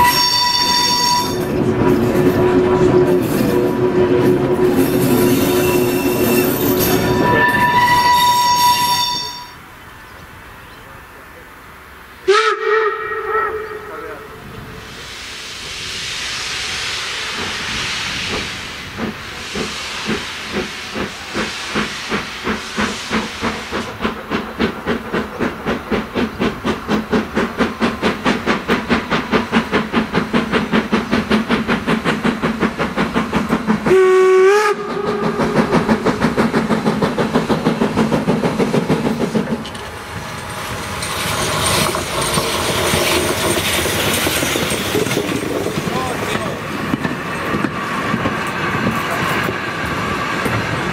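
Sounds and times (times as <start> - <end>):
steam whistle blast: 0.0 - 1.4, 2.4 - 9.6, 12.2 - 14.5, 33.9 - 35.7
steam locomotive chuffing: 0.0 - 9.5, 12.3 - 50.9
train coaches rolling and clattering: 0.0 - 11.7, 14.1 - 50.9
steam drain cocks hissing: 14.7 - 39.9.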